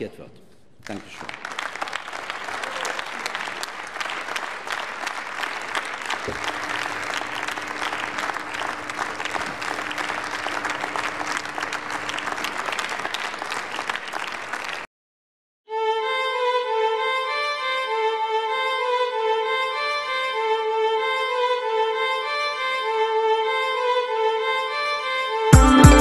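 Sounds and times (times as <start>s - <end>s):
crowd applauding: 0.8s - 14.9s.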